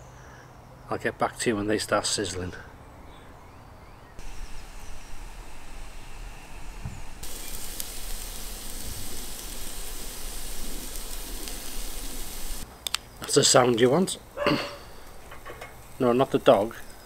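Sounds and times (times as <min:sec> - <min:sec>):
burgers sizzling on grill: 0:04.2 - 0:06.2, 0:07.0 - 0:12.6, 0:13.4 - 0:17.0.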